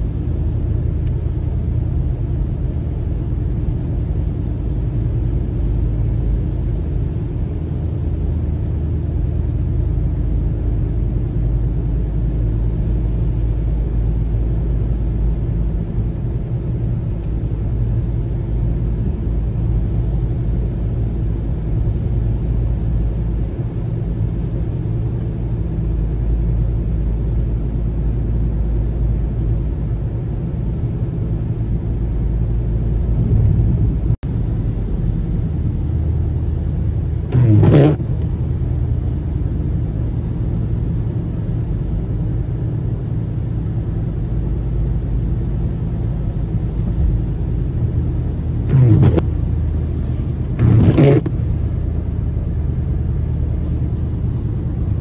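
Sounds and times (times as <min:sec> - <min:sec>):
car interior rumble: 0:00.0 - 0:55.0
windshield wipers swishing: 0:37.3 - 0:38.0, 0:48.7 - 0:49.2, 0:50.6 - 0:51.4.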